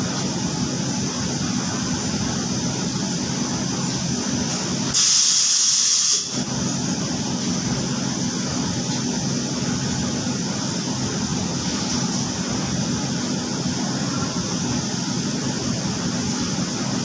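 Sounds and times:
loud hiss: 4.8 - 6.5.

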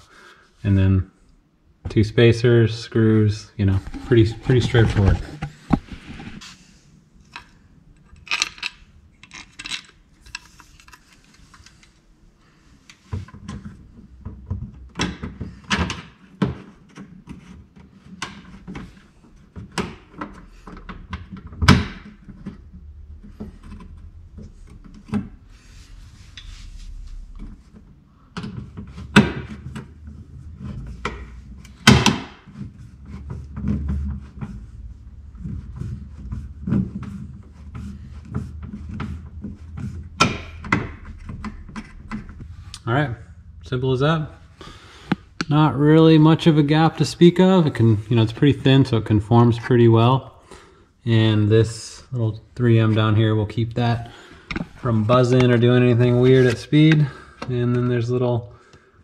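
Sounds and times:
sharp knocks: 40.1 - 42.5.

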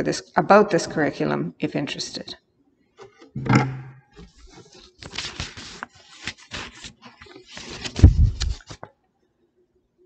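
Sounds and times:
book pages rustling: 4.2 - 8.9.

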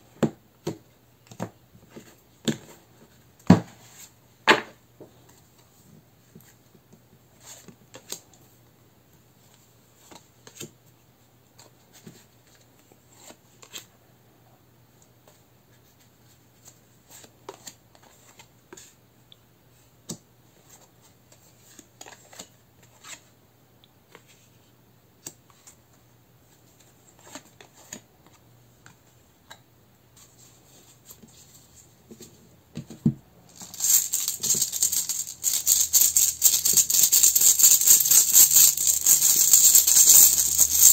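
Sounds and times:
pouch of runes rattling: 33.5 - 40.9.

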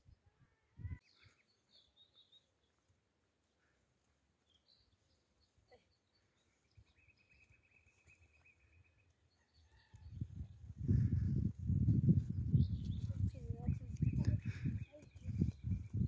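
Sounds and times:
faint bird chirps: 4.4 - 10.6.

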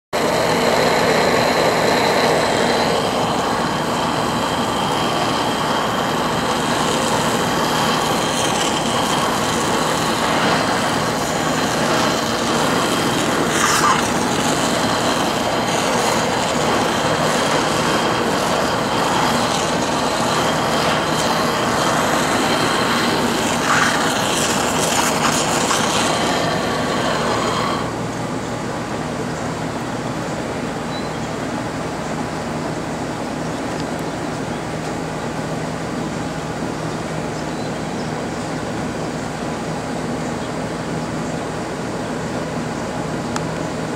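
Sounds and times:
crackles: 0.2 - 28.0
blowtorch flame hissing: 0.2 - 30.9.

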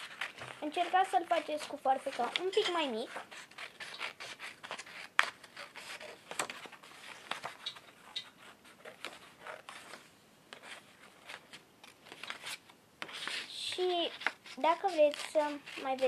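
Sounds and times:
scissors snipping paper: 0.0 - 7.8, 11.3 - 16.0
paper rustling: 0.0 - 16.0.

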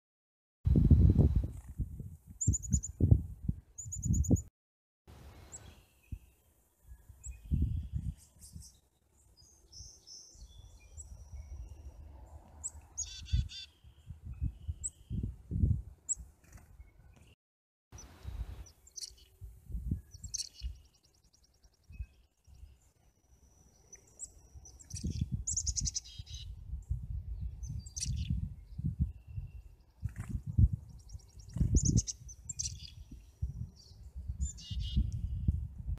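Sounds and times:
chickadees chirping: 12.6 - 14.0, 18.0 - 19.4, 20.1 - 21.4, 23.7 - 26.5, 31.1 - 33.0.

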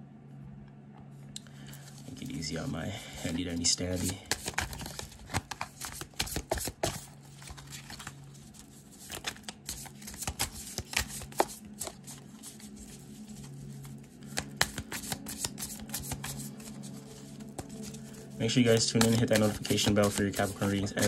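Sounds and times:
faint low hum: 0.0 - 5.8
cards being shuffled: 2.9 - 21.0.

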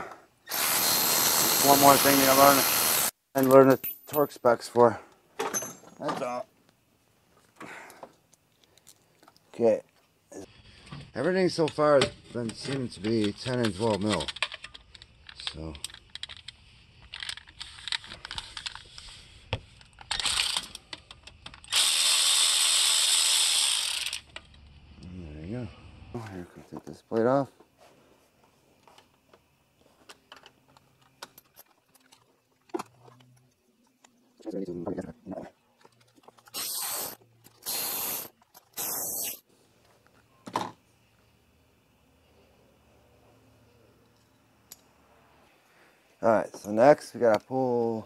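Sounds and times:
short hiss bursts: 36.5 - 39.5.

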